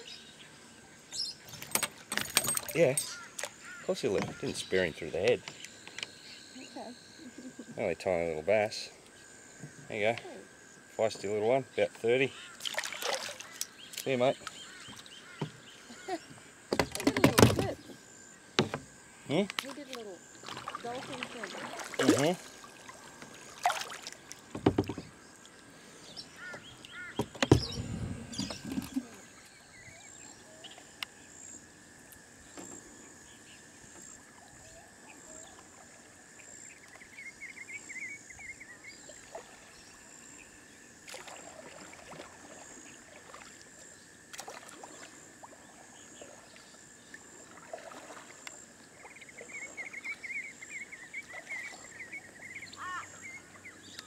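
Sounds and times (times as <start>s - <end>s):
birds chirping: 0.0s - 23.6s, 24.3s - 31.6s, 49.0s - 54.0s
paddle in water: 12.3s - 37.4s, 38.7s - 54.0s
knocks against kayak hull: 16.7s - 17.8s, 18.6s - 18.9s, 24.5s - 25.1s, 27.2s - 29.0s.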